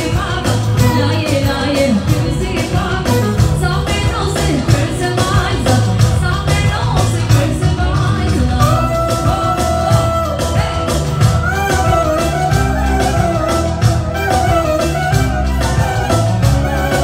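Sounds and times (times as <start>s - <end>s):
woman singing into microphone: 0.0s - 13.4s
band playing dance beat: 0.0s - 17.0s.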